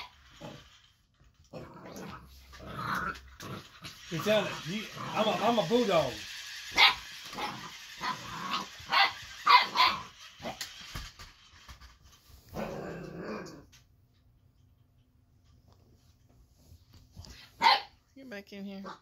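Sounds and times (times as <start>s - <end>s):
puppy barking: 6.8s - 10.1s, 17.6s - 18.0s.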